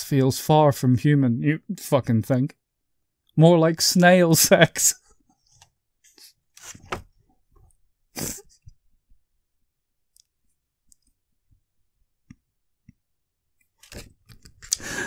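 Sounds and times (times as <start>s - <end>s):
person breathing sharply: 14.8s - 15.0s.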